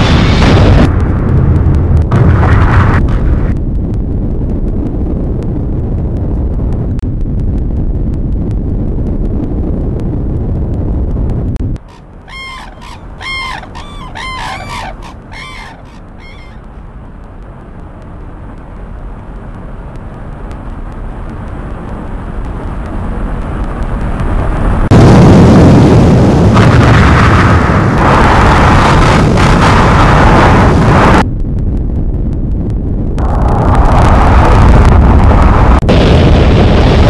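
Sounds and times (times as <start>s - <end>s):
low rumble: 0.0s - 37.0s
flock of birds calling: 11.9s - 16.7s.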